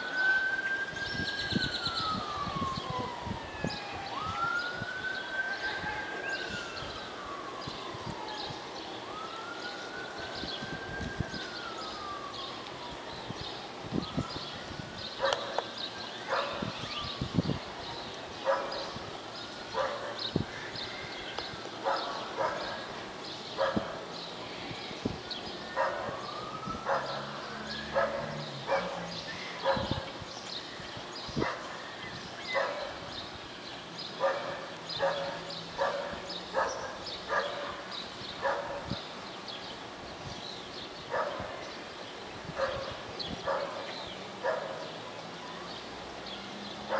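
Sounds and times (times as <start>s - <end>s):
dog barking: 15.2s - 15.6s, 16.3s - 16.7s, 18.4s - 18.9s, 19.8s - 20.2s, 21.8s - 22.8s, 23.6s - 23.9s, 25.8s - 26.2s, 26.9s - 27.2s, 28.0s - 29.0s, 29.6s - 30.0s, 32.6s - 33.0s, 34.2s - 37.8s, 38.4s - 39.0s, 41.1s - 41.4s, 42.6s - 44.9s.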